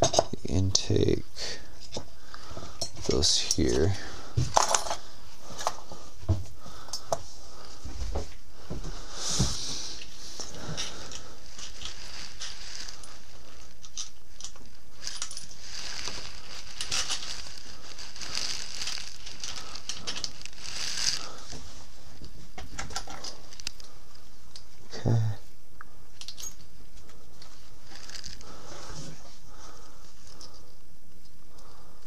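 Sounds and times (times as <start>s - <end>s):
steady faint hiss: 0.0s - 32.0s
metallic clicks of tools and parts: 26.2s - 26.7s.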